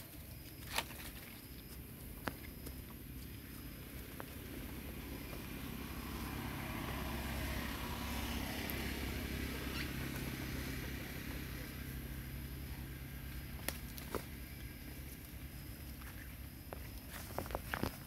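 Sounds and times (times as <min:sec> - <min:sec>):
vehicle engine passing by: 0:03.1 - 0:16.0.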